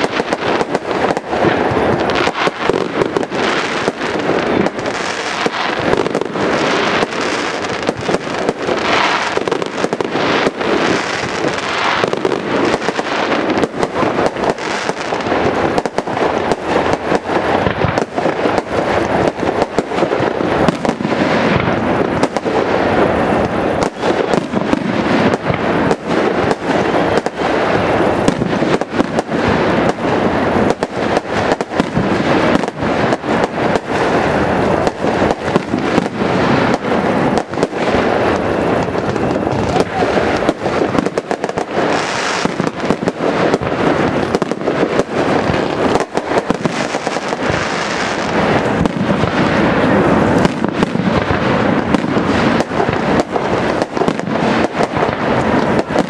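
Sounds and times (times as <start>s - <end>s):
fireworks bangs and crackles: 0.0s - 56.0s.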